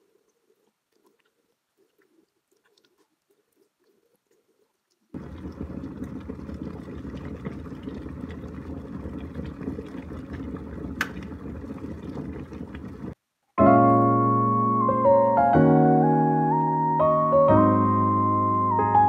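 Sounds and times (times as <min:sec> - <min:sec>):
kettle boiling: 0:05.1 - 0:13.2.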